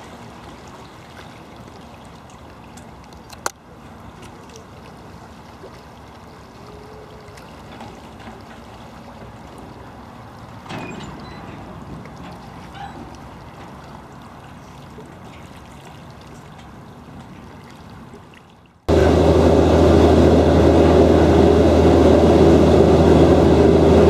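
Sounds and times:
ferry engine running: 18.9s - 24.0s.

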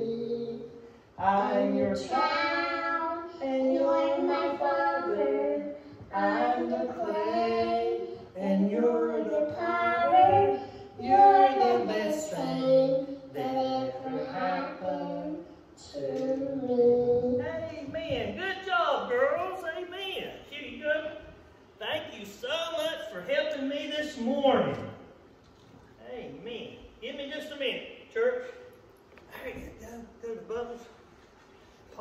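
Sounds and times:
girl singing into microphone: 0.0s - 17.8s.

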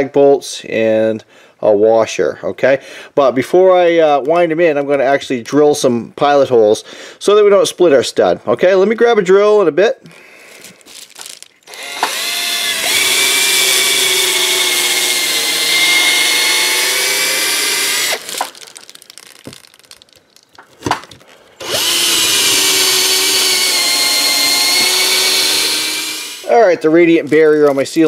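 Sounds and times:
cordless drill whining: 11.6s - 18.6s, 21.6s - 26.5s.

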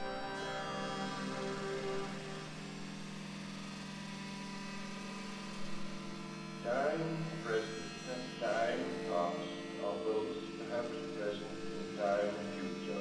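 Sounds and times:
synthesizer drone: 0.0s - 4.9s.

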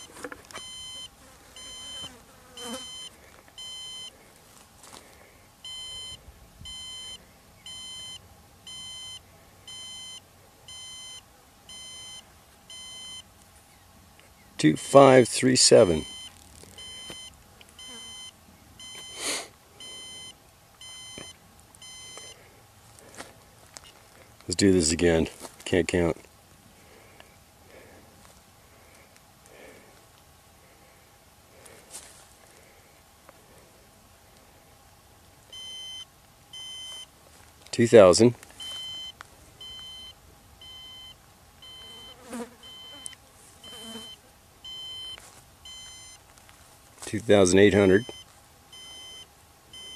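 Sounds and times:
electronic beeps: 0.0s - 4.1s, 5.6s - 13.2s, 15.9s - 19.2s, 19.8s - 22.4s, 35.5s - 37.1s, 38.6s - 46.2s, 48.0s - 49.9s.

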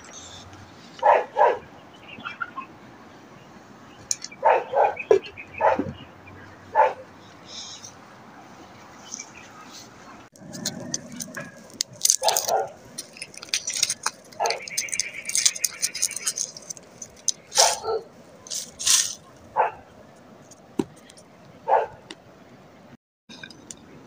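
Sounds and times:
garlic skins crackling: 10.4s - 19.4s.

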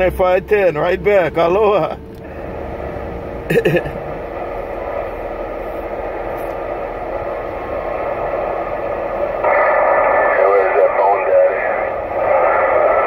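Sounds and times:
radio static hiss: 4.5s - 13.0s.

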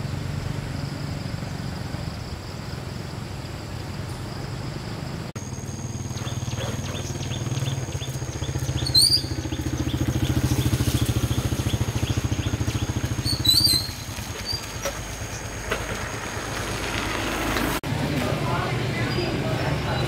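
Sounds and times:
small engine running: 5.0s - 20.0s.

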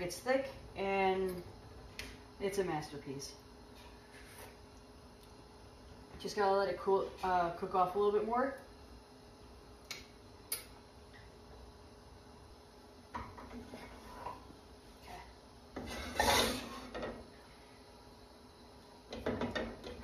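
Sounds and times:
spatula and saucepan scraping: 13.5s - 14.5s, 15.8s - 17.1s.

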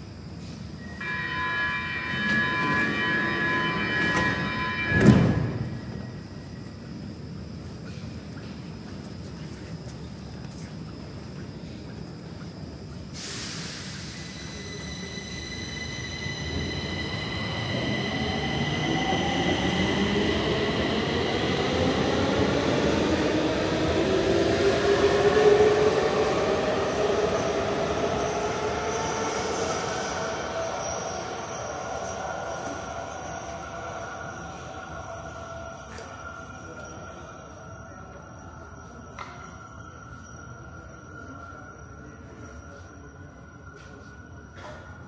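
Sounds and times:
air brake hiss: 13.2s - 14.8s.

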